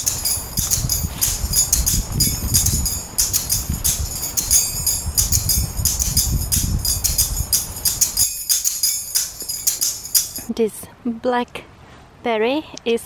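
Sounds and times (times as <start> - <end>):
music with jingling beat: 0.0 - 10.5.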